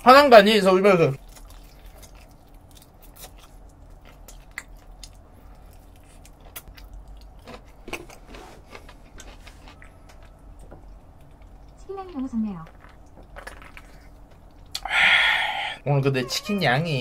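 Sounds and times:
man chewing crispy chicken: 1.0 - 11.8
mouth clicks: 14.7 - 15.8.

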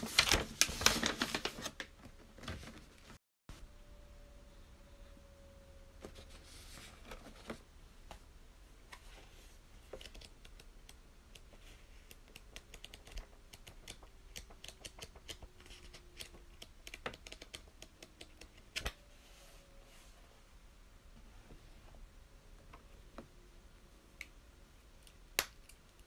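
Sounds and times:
paper pages rustling: 0.0 - 3.2.

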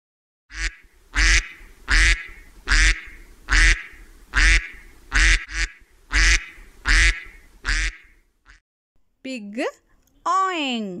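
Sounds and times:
duck quacking: 0.5 - 8.6.

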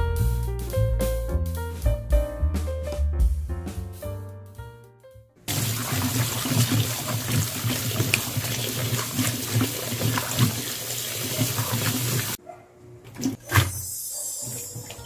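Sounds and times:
hands swishing vegetables in water: 5.5 - 12.4
small splashes and knocks: 5.5 - 12.4
tap water running into basin: 5.5 - 12.4.

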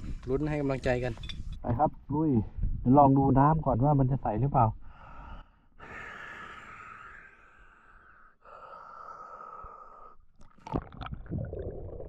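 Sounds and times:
breathing through a snorkel: 4.8 - 10.3.

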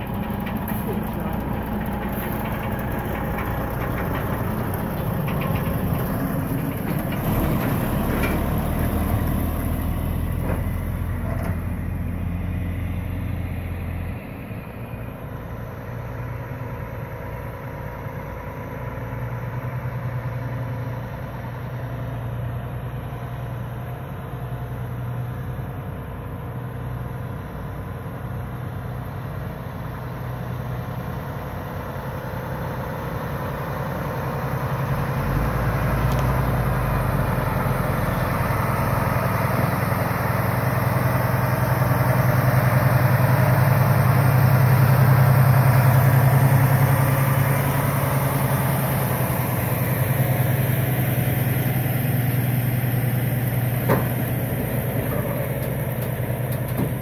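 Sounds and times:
truck diesel engine driving past: 0.0 - 57.0.

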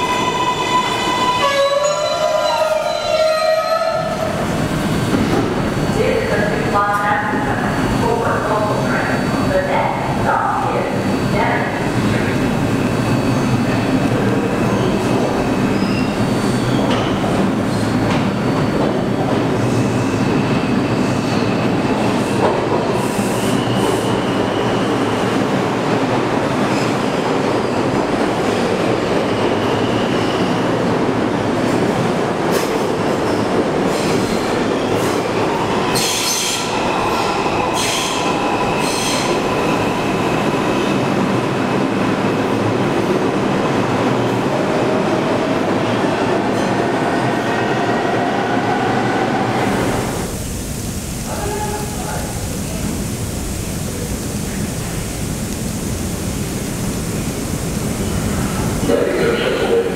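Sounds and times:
subway train rumbling: 0.0 - 59.9
high wheel squeal: 15.7 - 17.0.

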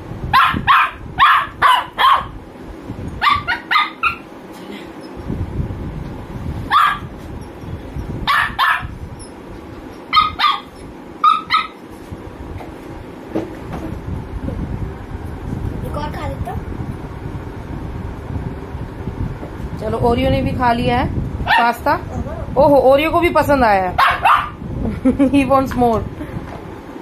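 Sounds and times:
small dog barking: 0.3 - 2.4, 3.2 - 4.2, 6.7 - 7.1, 8.3 - 9.0, 10.1 - 11.8, 21.4 - 21.8, 24.0 - 24.6.

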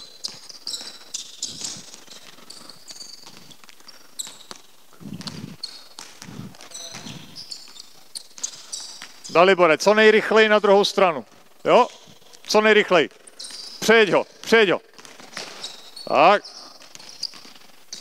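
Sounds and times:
basketball dribbling: 0.0 - 9.4
shoes squeaking on hardwood: 0.0 - 9.5, 11.2 - 18.0.

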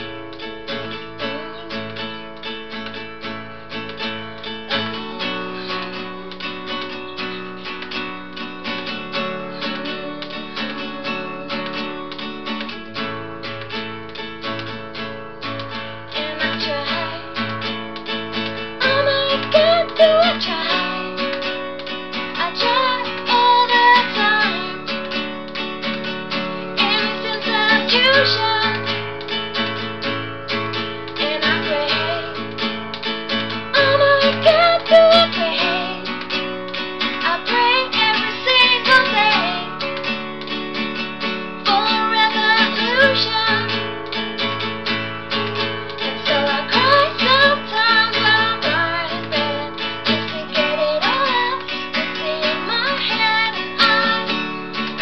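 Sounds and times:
acoustic guitar strumming chords: 0.0 - 55.0
woman singing: 0.7 - 2.5, 4.5 - 7.5, 8.8 - 12.7, 16.0 - 25.2, 26.8 - 29.7, 31.1 - 32.7, 33.4 - 36.3, 37.1 - 40.1, 41.6 - 44.0, 45.9 - 55.0.

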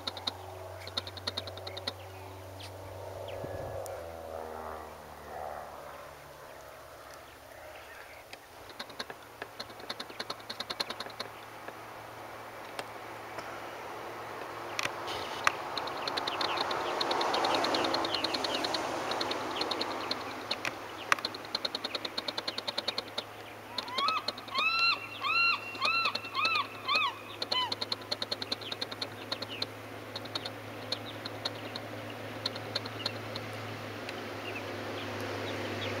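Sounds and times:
birds chirping: 0.0 - 5.2, 5.8 - 36.0
floatplane engine drone: 0.0 - 36.0
rising-and-falling bird calls: 14.6 - 33.4.

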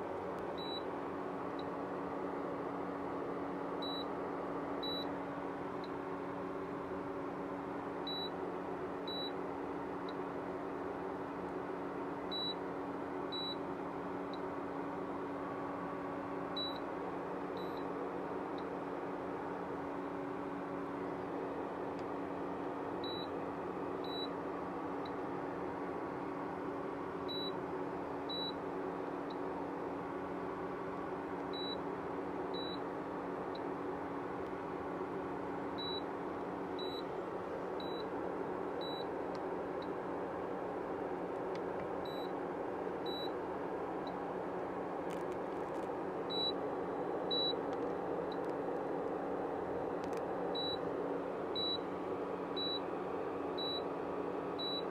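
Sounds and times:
cooling fan running: 0.0 - 54.9
induction cooktop humming: 0.0 - 54.9.

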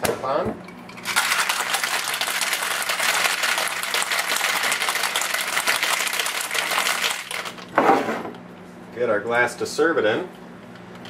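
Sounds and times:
ice rattling in metal shaker: 1.0 - 7.7.

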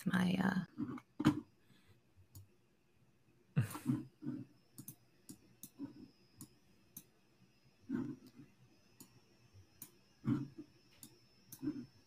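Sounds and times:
computer mouse clicks: 4.7 - 7.1.

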